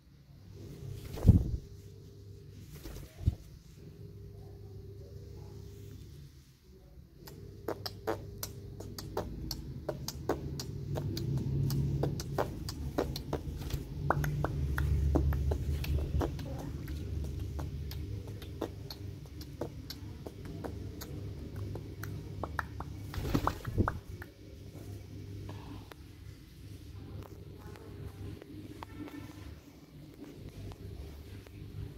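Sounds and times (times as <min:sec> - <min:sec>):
bird wings flapping: 0:01.0 - 0:01.6, 0:02.7 - 0:03.4, 0:23.0 - 0:24.0.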